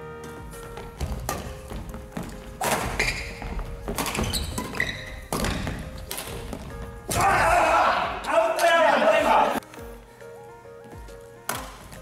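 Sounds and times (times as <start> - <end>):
background music: 0.0 - 12.0
footfalls on wooden floor: 0.3 - 7.6
racket hitting shuttlecock: 1.0 - 7.4, 11.4 - 12.0.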